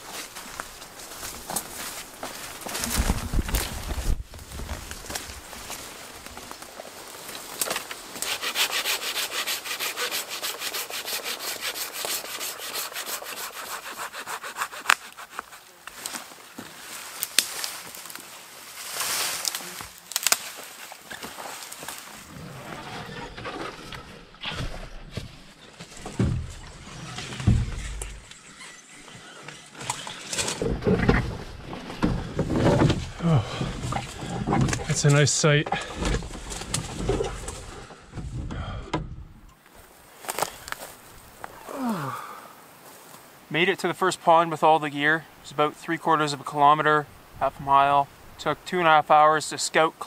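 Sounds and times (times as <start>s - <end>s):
heavy footsteps: 0.0s - 6.6s, 20.6s - 28.3s, 30.6s - 42.1s
branches scraping canoe hull: 0.0s - 41.6s
hand saw cutting branch: 7.6s - 16.1s
heavy thuds: 30.5s - 39.5s
man breathing hard: 33.1s - 34.4s, 37.8s - 39.2s, 41.5s - 42.7s.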